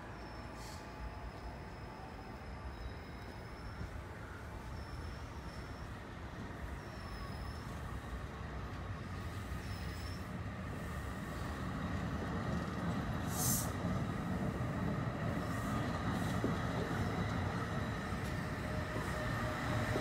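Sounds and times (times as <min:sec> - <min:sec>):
train rumbling along track: 0:00.0 - 0:20.0
brief hiss: 0:00.6 - 0:00.9, 0:13.3 - 0:13.8.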